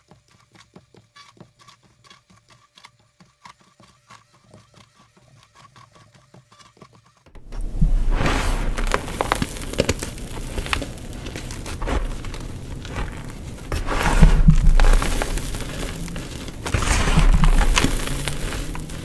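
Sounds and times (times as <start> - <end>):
chalk blocks crunching: 1.2 - 19.0.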